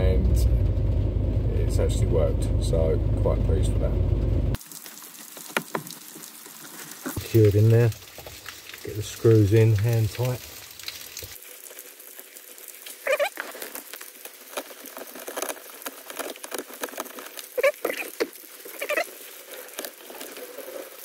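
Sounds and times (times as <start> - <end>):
short squeaks: 13.0 - 13.6.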